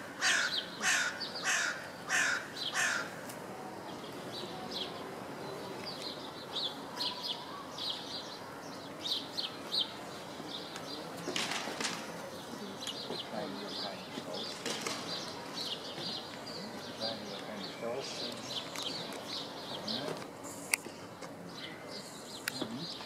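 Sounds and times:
crow cawing: 0:00.0 - 0:03.2
small birds chirping: 0:00.0 - 0:23.0.

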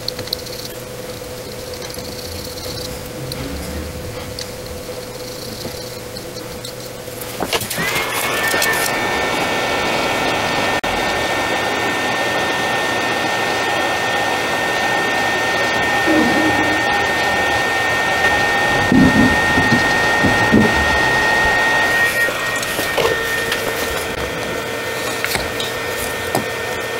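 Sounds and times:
hot-air station fan hiss and whine: 0:00.0 - 0:26.9.

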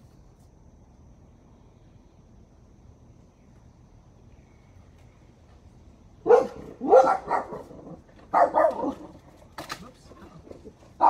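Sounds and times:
dog barking: 0:06.2 - 0:09.2.

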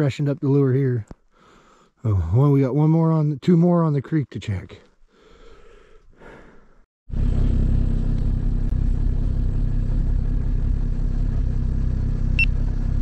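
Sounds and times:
snowmobile engine idling: 0:07.1 - 0:13.0.

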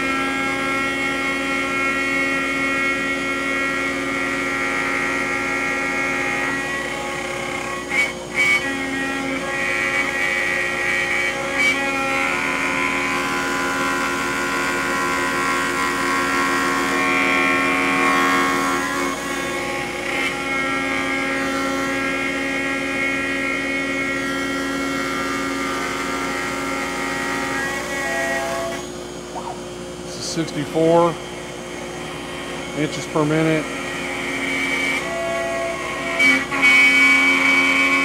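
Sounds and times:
router motor whine: 0:00.0 - 0:38.0
wood cutting rasp: 0:32.8 - 0:38.0.

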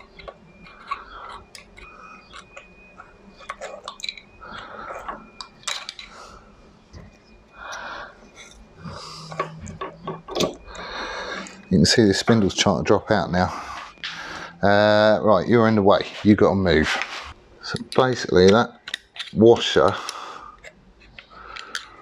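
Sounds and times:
metal drift clicking and scraping: 0:00.0 - 0:06.4, 0:15.6 - 0:22.0.

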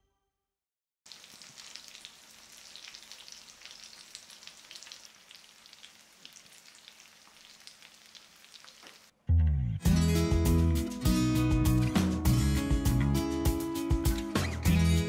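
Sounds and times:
fish sizzling in hot oil: 0:01.1 - 0:09.1
oil crackling and spitting: 0:01.1 - 0:09.1.

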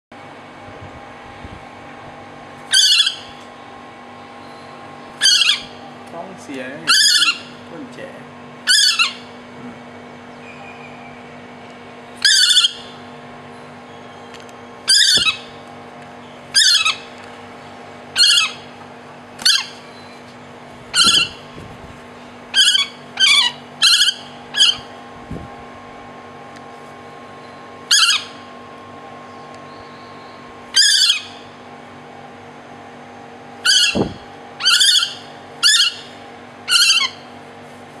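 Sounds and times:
cuckoo calling: 0:04.4 - 0:05.9, 0:06.9 - 0:07.6, 0:08.7 - 0:09.4, 0:12.2 - 0:13.0, 0:18.2 - 0:18.7, 0:20.9 - 0:21.5, 0:22.5 - 0:24.9, 0:29.3 - 0:31.6, 0:33.6 - 0:37.3.

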